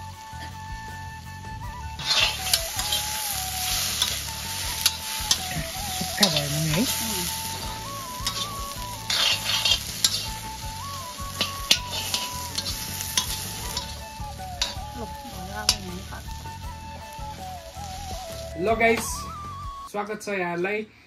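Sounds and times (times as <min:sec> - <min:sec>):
food sizzling in hot oil: 0:00.0 - 0:19.6
background melody: 0:00.0 - 0:20.6
metal spoon scraping pan: 0:02.0 - 0:14.0, 0:14.6 - 0:14.8.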